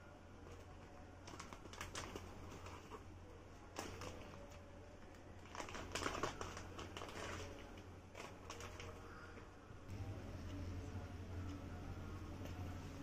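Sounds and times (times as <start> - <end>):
plastic packaging crinkling: 0.4 - 3.0, 3.7 - 9.2.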